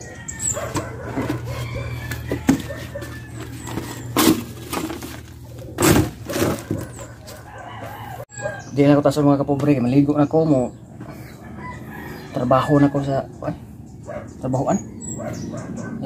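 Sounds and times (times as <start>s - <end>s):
rooster crowing: 0.0s - 4.1s, 6.8s - 8.8s, 11.3s - 13.3s
chickens clucking: 0.0s - 16.0s
loud knocks or rustles: 5.8s - 6.9s.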